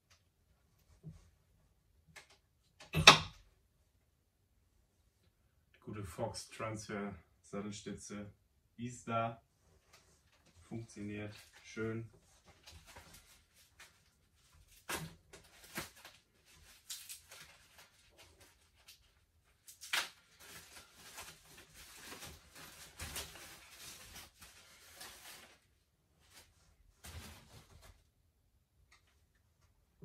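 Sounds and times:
rustling: 0:11.3 - 0:28.1.

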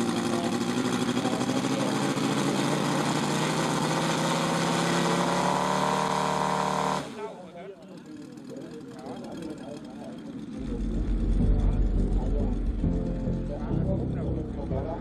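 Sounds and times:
model plane radial engine running: 0:00.0 - 0:10.8.

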